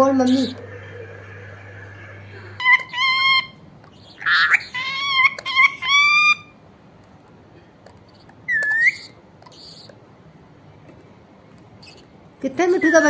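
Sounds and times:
parakeet calling: 0:00.0 - 0:06.6, 0:08.0 - 0:10.0, 0:11.8 - 0:13.0
parakeet harsh squawk: 0:00.1 - 0:06.6, 0:08.1 - 0:09.9.

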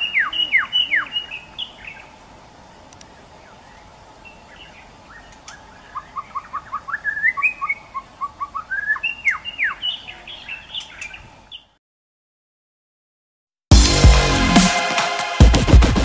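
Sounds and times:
songbird chirping and whistling: 0:00.0 - 0:02.2, 0:03.1 - 0:11.8.

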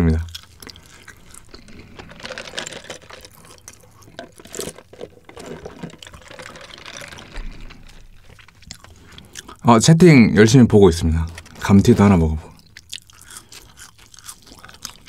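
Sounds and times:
swallowing sounds: 0:03.6 - 0:09.6.

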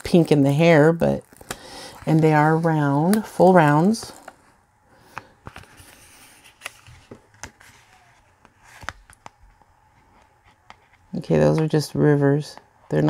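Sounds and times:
plastic film crinkling and ticking: 0:00.0 - 0:04.5.

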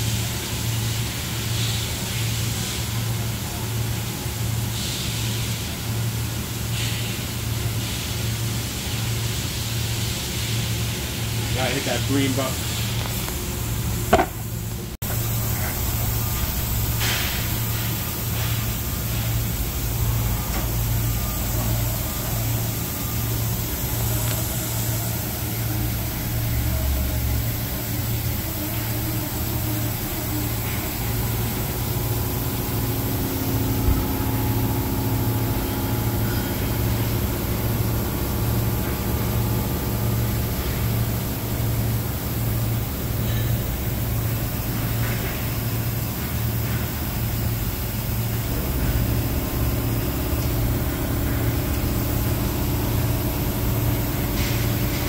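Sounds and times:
high machine whine: 0:10.8 - 0:55.0
pulsing machine hum: 0:11.4 - 0:55.0.

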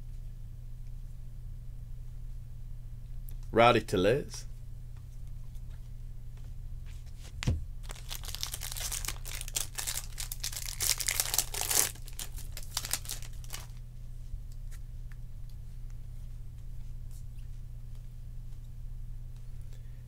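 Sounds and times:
steady low hum: 0:00.0 - 0:20.0
wrapper crinkling and tearing: 0:07.8 - 0:13.8.

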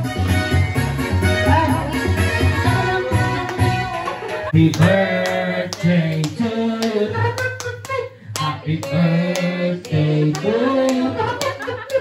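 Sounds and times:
song with singing: 0:01.4 - 0:12.0
sharp hand claps: 0:04.6 - 0:12.0.

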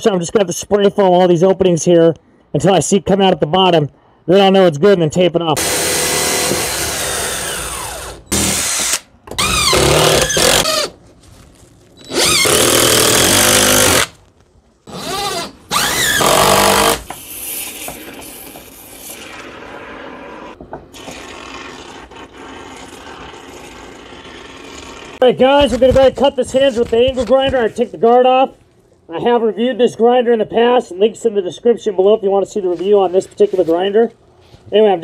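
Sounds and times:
quiet steady noise: 0:00.0 - 0:35.0
cordless drill driving screws: 0:05.6 - 0:10.9, 0:12.0 - 0:14.2, 0:14.9 - 0:17.2.

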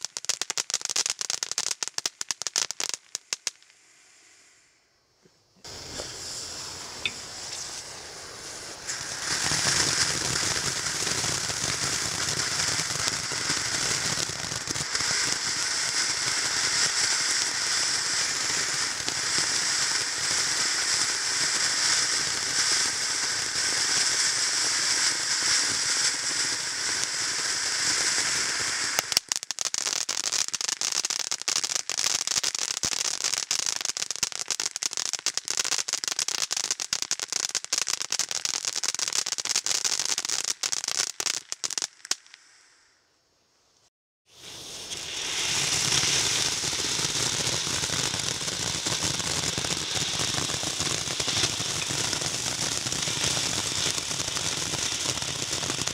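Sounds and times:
firework fountain spraying sparks: 0:00.0 - 0:04.6, 0:05.6 - 0:43.0, 0:44.3 - 0:55.9
firework crackling: 0:00.0 - 0:04.7, 0:05.6 - 0:43.1, 0:44.3 - 0:55.9
fuse hissing: 0:05.6 - 0:10.2, 0:44.3 - 0:46.7.

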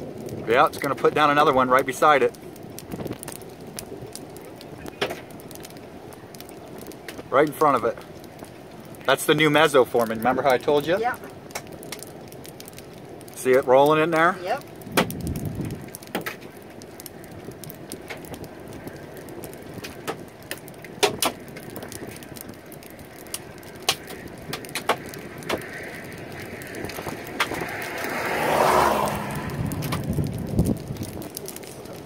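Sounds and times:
steady wind noise: 0:00.0 - 0:32.0
loud rushing swell: 0:27.8 - 0:29.9.

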